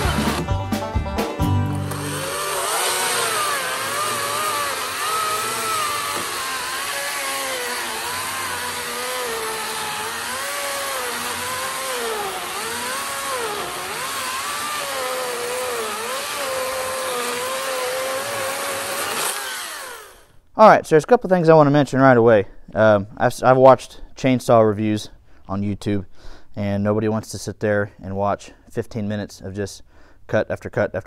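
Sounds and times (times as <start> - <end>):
electric chainsaw cutting wood: 0.0 - 0.5, 1.6 - 20.4.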